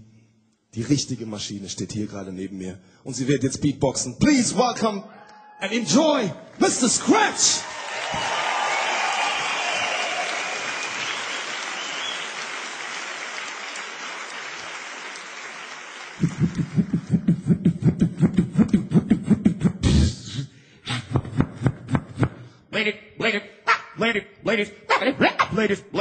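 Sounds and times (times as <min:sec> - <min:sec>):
audience applause and cheering: 0:06.4 - 0:17.7
amplified beatboxing: 0:16.2 - 0:23.9.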